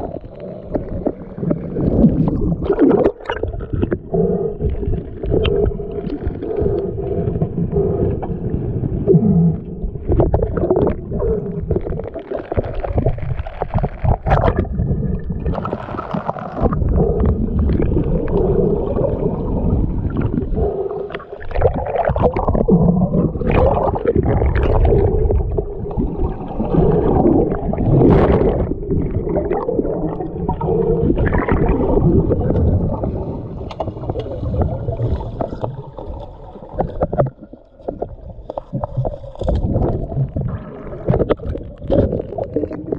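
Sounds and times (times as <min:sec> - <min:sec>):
muffled water gurgling and sloshing: 0:00.0 - 0:42.9.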